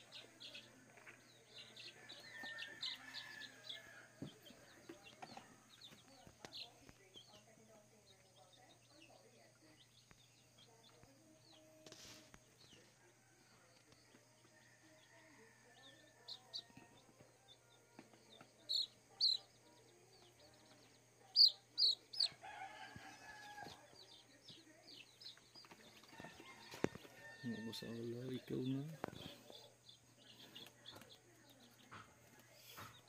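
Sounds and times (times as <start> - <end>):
chicks peeping: 0.0 - 33.0.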